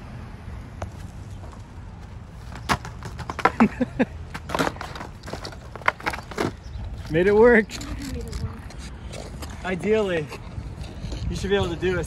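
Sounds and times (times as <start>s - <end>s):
longboard clacking on asphalt: 0.8s - 12.0s
board and wheels knocking: 2.4s - 7.2s.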